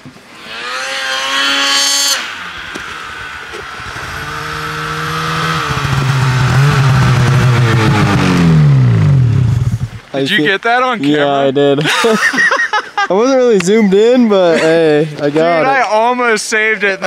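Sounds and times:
snowmobile approaching: 0:00.2 - 0:10.1
snowmobile engine revving: 0:00.2 - 0:10.1.

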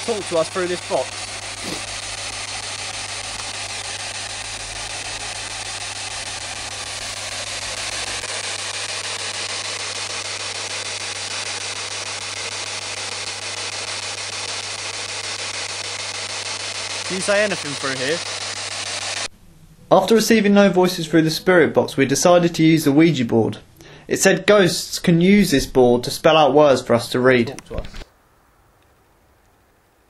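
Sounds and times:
radio static hiss: 0:00.0 - 0:19.3, 0:27.2 - 0:28.1.

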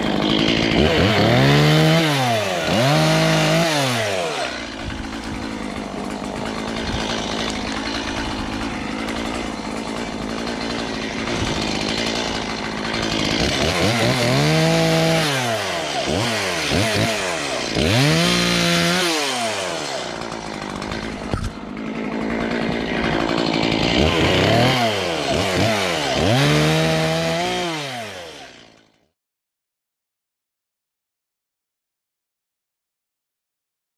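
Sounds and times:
chainsaw cutting branches: 0:00.0 - 0:29.2.

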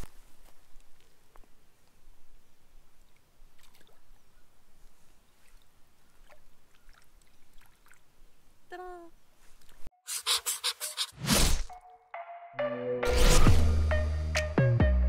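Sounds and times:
shallow water splashing and lapping: 0:03.2 - 0:08.4.

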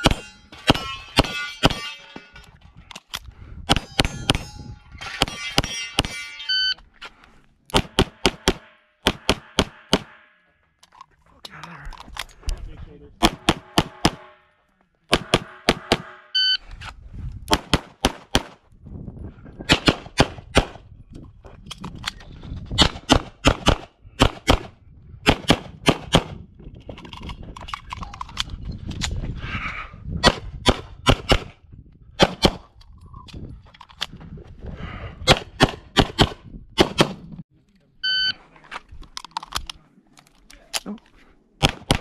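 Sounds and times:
rapid pistol shots: 0:07.7 - 0:10.2, 0:13.2 - 0:14.3, 0:17.5 - 0:18.6, 0:19.7 - 0:20.8, 0:22.8 - 0:24.7, 0:25.3 - 0:26.4, 0:32.2 - 0:32.7, 0:41.6 - 0:42.0.

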